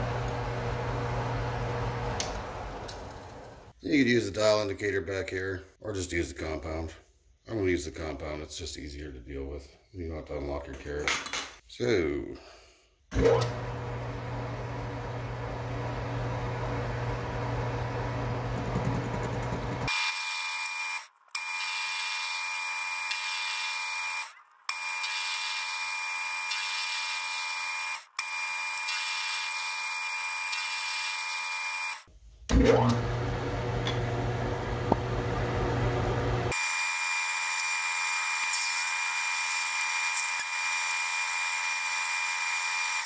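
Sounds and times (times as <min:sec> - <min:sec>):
metal lathe drilling: 0:36.5 - 0:43.0.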